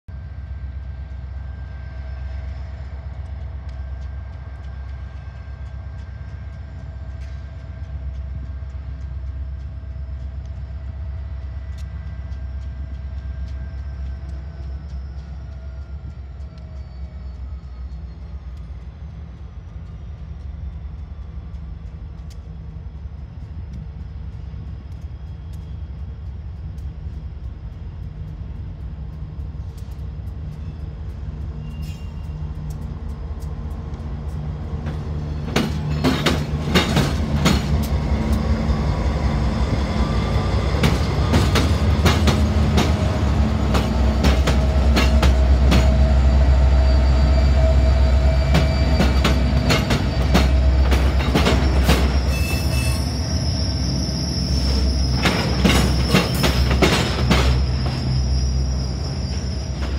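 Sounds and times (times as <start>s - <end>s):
diesel locomotive engine rumble: 0.0s - 59.9s
sharp clicks: 2.3s - 46.6s.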